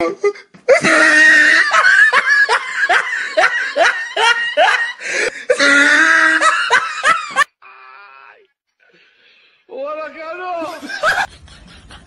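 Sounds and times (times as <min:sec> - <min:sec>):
person laughing hard: 0:00.7 - 0:07.5, 0:10.6 - 0:12.0.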